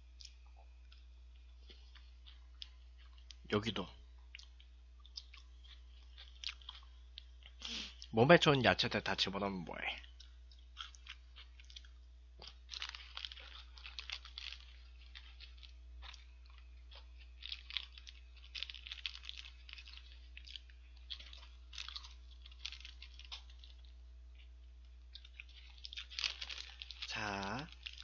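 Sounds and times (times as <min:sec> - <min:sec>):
faint electrical hum: 0:00.0 - 0:28.0
person chewing: 0:00.1 - 0:03.5, 0:04.2 - 0:08.1, 0:10.0 - 0:28.0.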